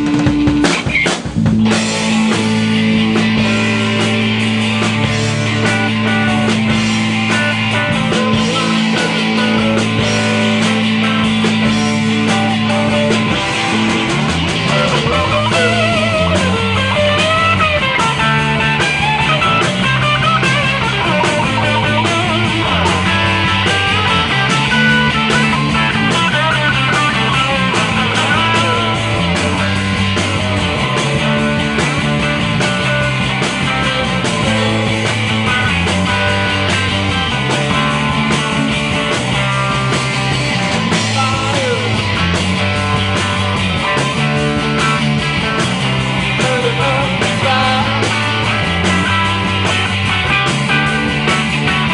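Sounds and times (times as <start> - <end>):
bass line: 0.0 - 51.9
lead guitar bending notes: 0.0 - 51.9
rock band playing: 0.0 - 51.9.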